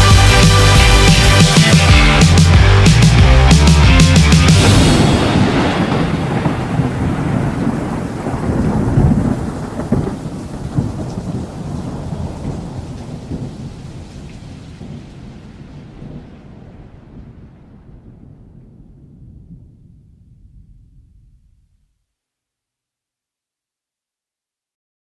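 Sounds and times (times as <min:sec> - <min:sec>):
synthwave drums and synths: 0:00.0 - 0:06.6
rolling thunder: 0:04.4 - 0:21.5
rain: 0:04.6 - 0:20.0.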